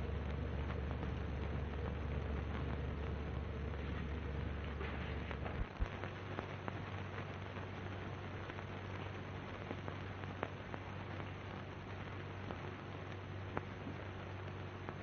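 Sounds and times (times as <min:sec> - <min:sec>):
film hiss and crackle: 0:00.0 - 0:15.0
low hum: 0:00.0 - 0:15.0.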